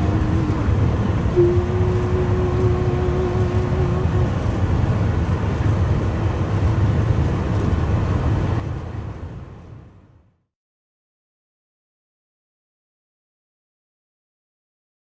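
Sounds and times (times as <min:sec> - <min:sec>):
low rumble of moving train: 0:00.0 - 0:10.4
single held tone: 0:01.3 - 0:04.5.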